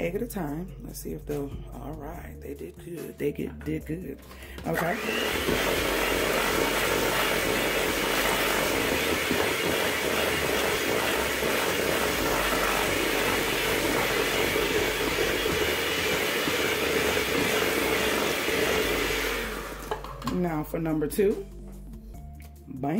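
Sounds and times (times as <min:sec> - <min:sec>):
electric hand mixer whirring: 0:04.5 - 0:20.4.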